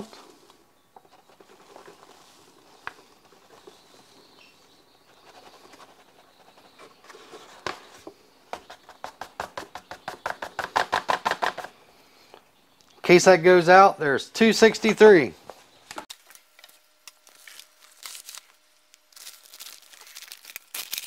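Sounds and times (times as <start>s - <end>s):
paper bag rustling: 17.2s - 21.0s.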